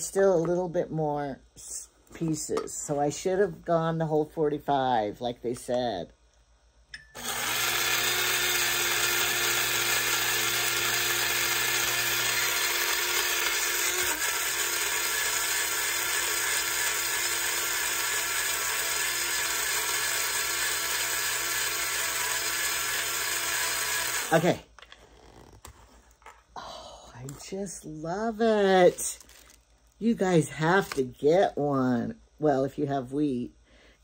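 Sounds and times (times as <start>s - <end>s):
electric grinder grinding grain: 7.2s - 24.6s.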